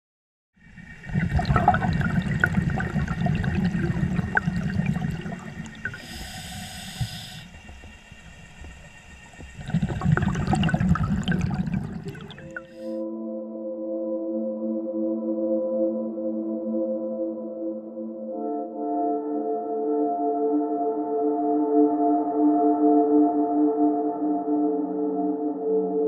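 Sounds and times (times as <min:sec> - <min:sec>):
bubbling exhale underwater: 0:00.6 - 0:12.9
regulator inhale hiss: 0:05.2 - 0:10.1, 0:11.8 - 0:13.0.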